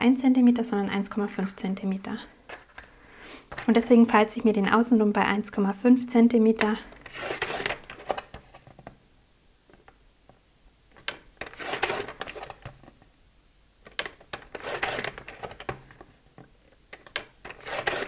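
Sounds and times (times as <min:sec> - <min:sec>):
paper trimmer blade sliding: 0:07.0 - 0:07.9, 0:11.5 - 0:12.5, 0:14.5 - 0:15.6, 0:17.5 - 0:18.0.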